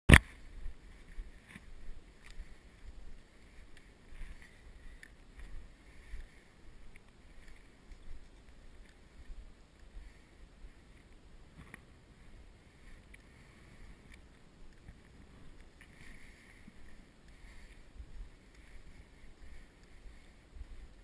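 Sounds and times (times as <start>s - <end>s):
wind rumbling on microphone: 0.1s - 21.0s
small clicks: 1.4s - 3.0s, 3.6s - 10.0s, 13.0s - 16.2s.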